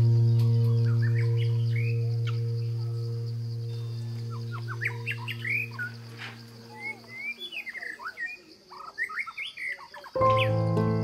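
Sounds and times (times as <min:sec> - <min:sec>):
low held tone: 0:00.0 - 0:07.2
steady high hiss: 0:00.0 - 0:07.7
songbirds chirping: 0:00.0 - 0:11.0.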